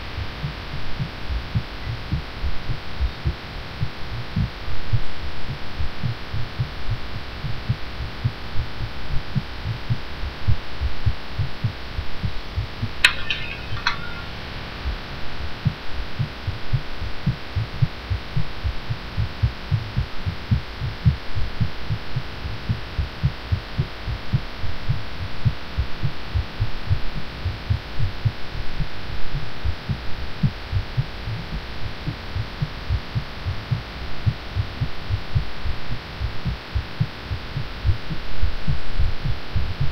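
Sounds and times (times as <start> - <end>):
fast heartbeat thumps: 0.4 - 13.0, 15.6 - 39.9.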